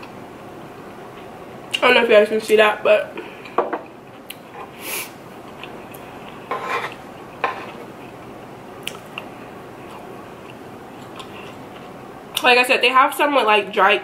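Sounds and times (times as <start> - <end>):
spoon scraping a food tray: 6.2 - 7.9.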